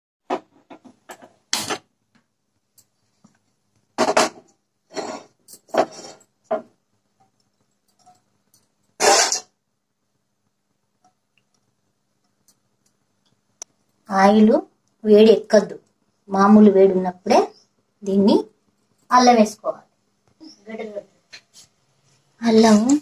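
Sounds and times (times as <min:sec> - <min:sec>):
pan scraping and clattering: 0:04.0 - 0:06.3, 0:09.0 - 0:09.5.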